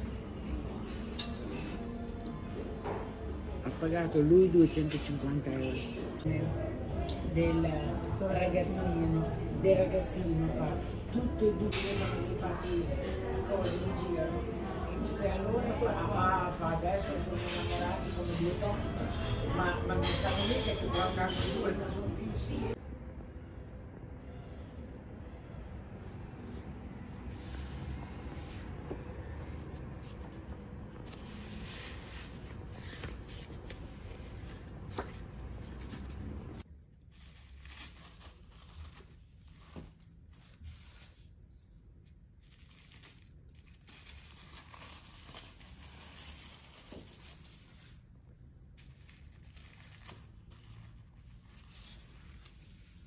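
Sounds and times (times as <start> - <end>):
paper and plastic crinkling: 29.9 - 41.3, 41.9 - 53.0.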